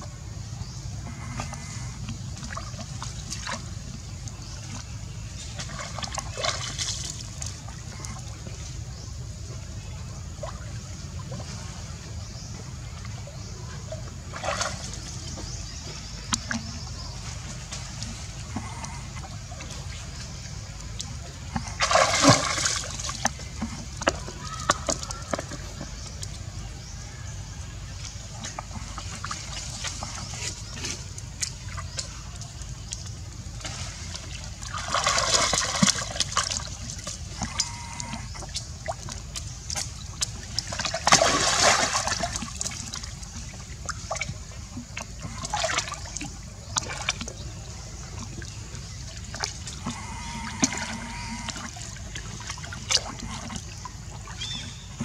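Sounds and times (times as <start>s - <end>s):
water splashing and sloshing: 0.0s - 55.0s
water drips and plops: 14.3s - 26.5s, 28.0s - 55.0s.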